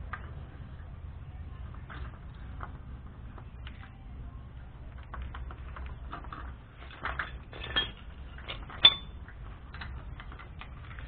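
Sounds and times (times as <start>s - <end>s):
metal tools clinking and scraping: 5.6s - 11.0s.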